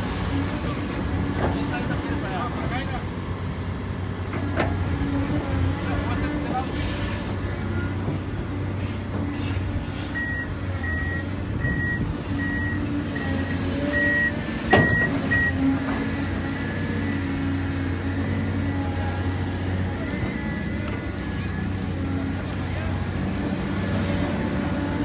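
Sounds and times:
excavator diesel engine running: 0.0 - 25.0
back-up alarm beeping: 10.2 - 15.6.

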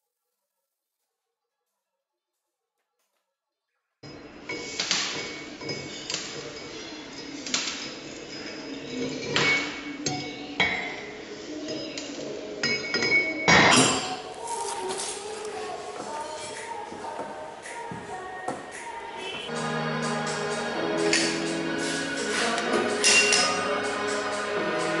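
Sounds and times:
background music: 13.9 - 25.0
hammer striking metal: 23.0 - 23.6.

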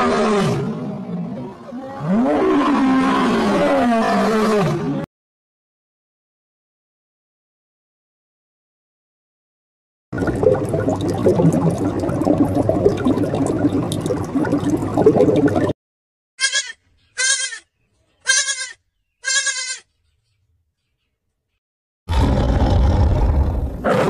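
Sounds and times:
goat bleating: 16.4 - 19.9.

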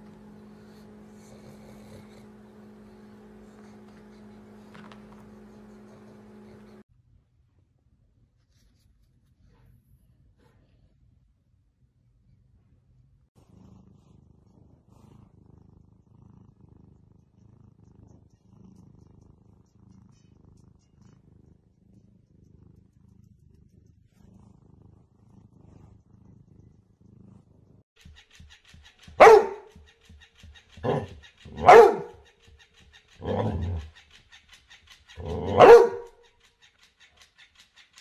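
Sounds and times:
cat purring: 0.0 - 6.8, 12.2 - 38.0
toy motor ticking: 28.0 - 38.0
dog barking: 29.1 - 29.8, 30.8 - 32.2, 33.2 - 33.8, 35.2 - 36.2.

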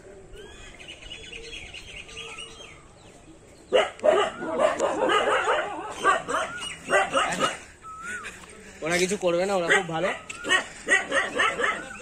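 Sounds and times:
faint bird chirps: 0.3 - 4.7
dogs barking loudly: 3.7 - 7.8, 9.5 - 12.0.

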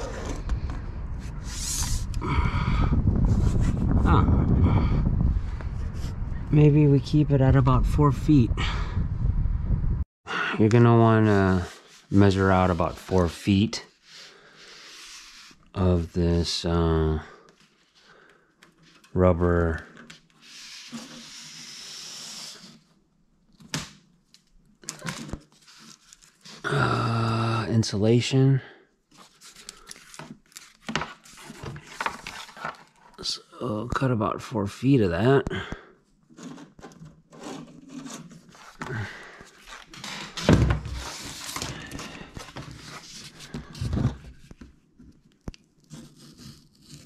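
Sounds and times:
foam tape hissing rustle: 20.4 - 22.9.

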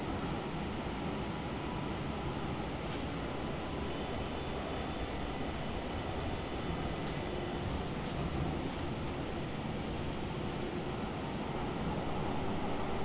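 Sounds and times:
subway train rumble: 0.0 - 13.0.

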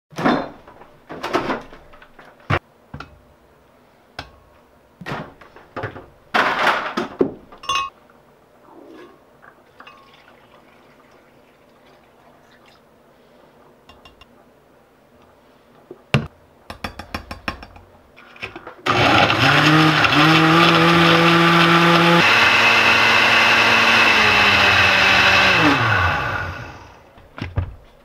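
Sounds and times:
blender motor running: 18.9 - 27.0.

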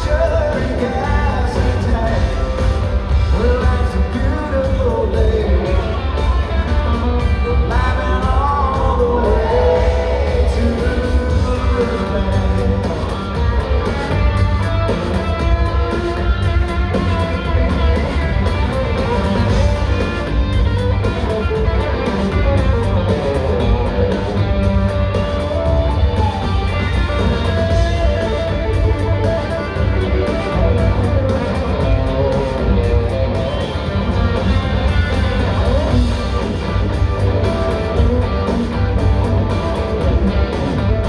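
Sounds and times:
man singing: 0.0 - 6.7, 7.4 - 13.4
live country band: 0.0 - 41.0.

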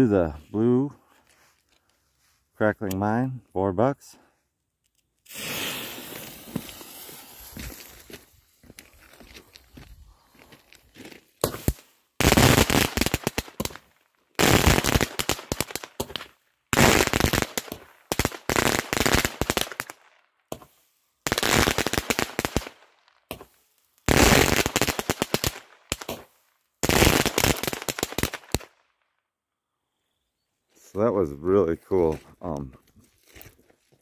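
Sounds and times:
firework shots with crackling bursts: 5.2 - 8.3, 11.4 - 28.8.

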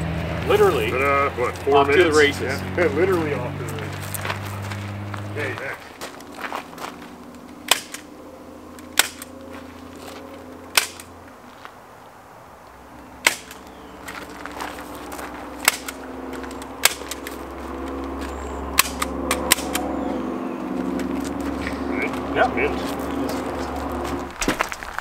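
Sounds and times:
low hum: 0.0 - 24.4
staple gun firing: 7.7 - 8.0, 8.9 - 9.3, 10.7 - 11.1, 13.2 - 13.6, 15.6 - 16.0, 16.8 - 17.3, 18.8 - 19.9.

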